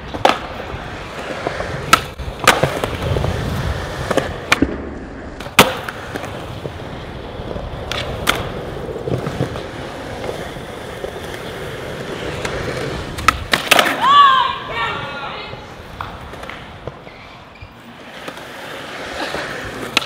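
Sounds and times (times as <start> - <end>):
skateboard wheels rolling on concrete: 0.0 - 20.0
skateboard landing slap: 0.1 - 0.6, 1.8 - 3.4, 4.0 - 6.4, 7.8 - 8.5, 12.4 - 14.0, 19.8 - 20.0
skateboard tail pops: 0.1 - 0.6, 1.8 - 6.7, 7.8 - 8.5, 12.3 - 14.0, 19.8 - 20.0.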